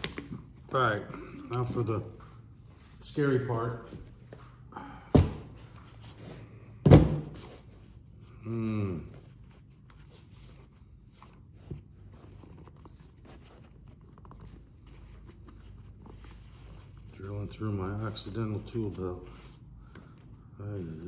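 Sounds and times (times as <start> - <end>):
thunks on wooden workbench: 5.1 - 5.5, 6.8 - 7.4
person humming: 8.4 - 9.1.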